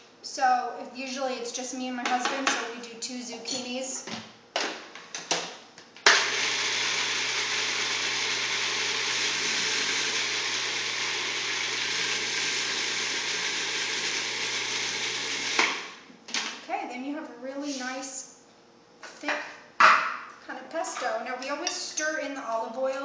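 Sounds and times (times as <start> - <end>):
food processor running: 6.1 - 16.0.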